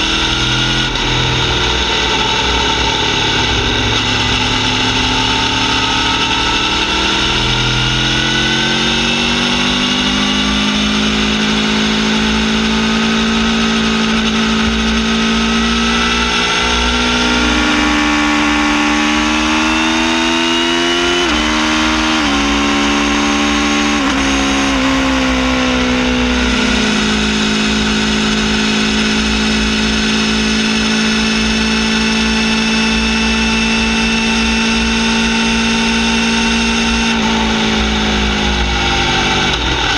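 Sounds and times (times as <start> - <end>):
low wind rumble: 0.0 - 9.5
motorcycle engine revving: 0.0 - 39.9.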